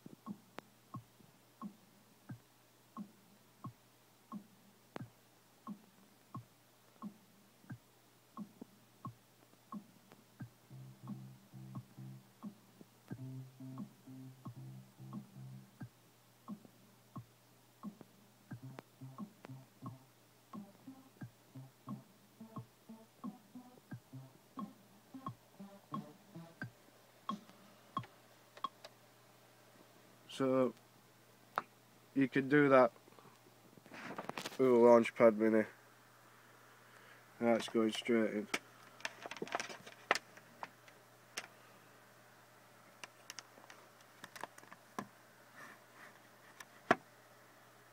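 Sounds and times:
short plucked electronic notes: 0:10.7 - 0:12.3, 0:13.1 - 0:15.8
hands clicking on controller: 0:43.0 - 0:45.1.

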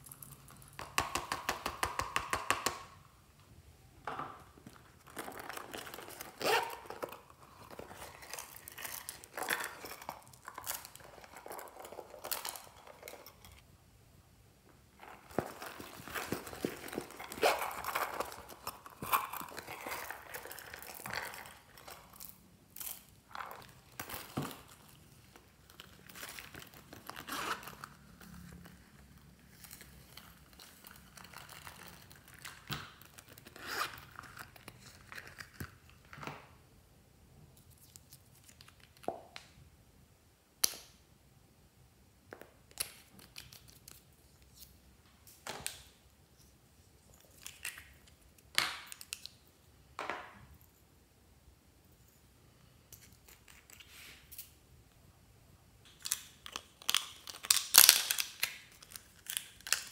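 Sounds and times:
zipper rasps: 0:06.1 - 0:07.2, 0:17.0 - 0:18.3, 0:27.2 - 0:27.8.

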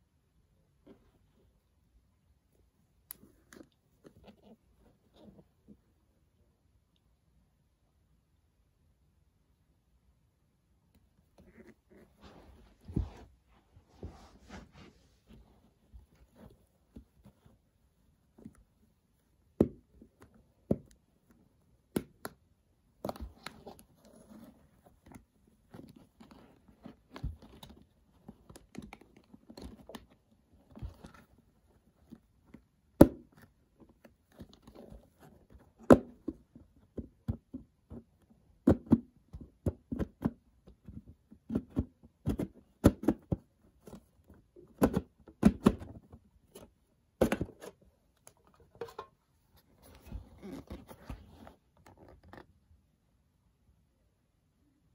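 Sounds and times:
plastic case taps and scraping: 0:38.7 - 0:49.2.

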